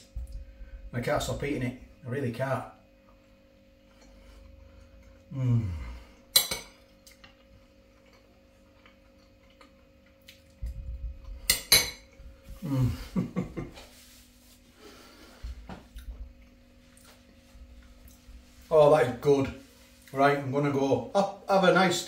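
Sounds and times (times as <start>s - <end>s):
man humming mmm: 5.3s - 6.2s, 12.5s - 13.6s
metal spoon clinking on dish: 6.4s - 6.8s.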